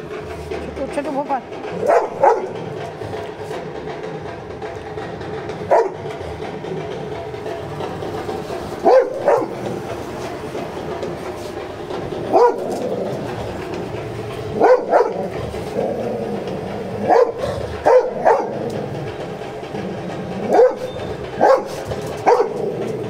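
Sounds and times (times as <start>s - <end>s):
dog barking: 1.8s - 2.6s, 5.7s - 6.0s, 8.8s - 9.7s, 12.3s - 12.9s, 14.6s - 15.3s, 17.0s - 18.6s, 20.5s - 22.7s.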